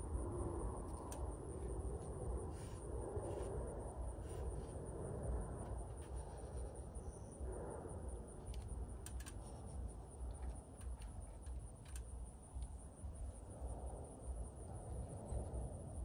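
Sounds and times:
high insect trill: 0.0 - 16.0
steady low rumble: 0.0 - 16.0
faint light clicks: 8.4 - 12.7.

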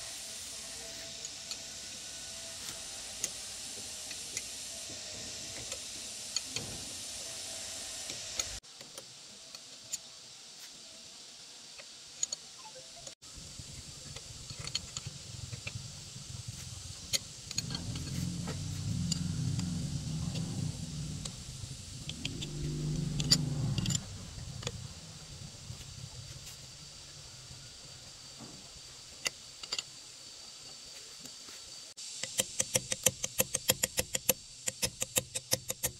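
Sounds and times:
low rumble: 13.3 - 27.9
hand tools clicking on bolts: 32.2 - 35.9.

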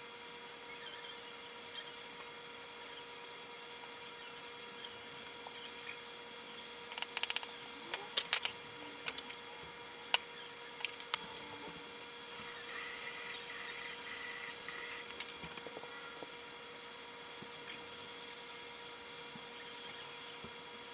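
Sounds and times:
steady hiss: 12.3 - 15.1.

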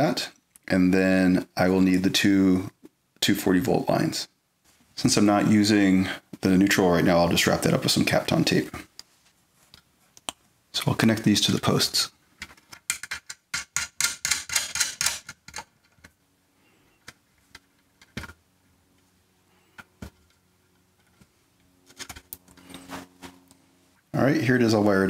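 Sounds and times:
small metal clicks and rattles: 12.4 - 16.2.

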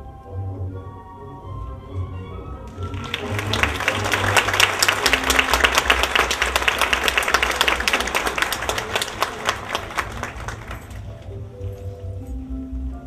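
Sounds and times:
audience applauding: 2.6 - 11.4.

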